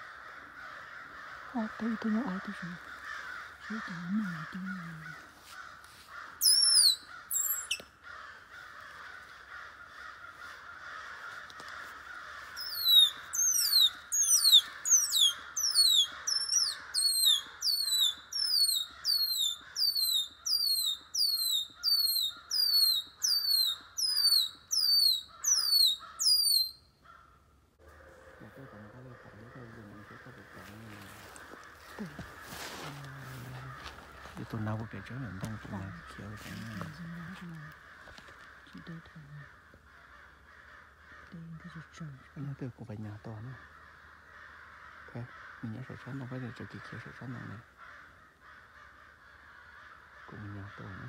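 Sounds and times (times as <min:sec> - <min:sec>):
bird calling falling notes: 0:06.4 - 0:08.0, 0:12.5 - 0:26.9.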